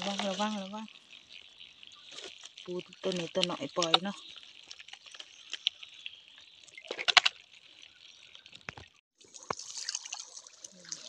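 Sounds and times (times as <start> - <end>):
water dripping and splashing: 0.0 - 11.0.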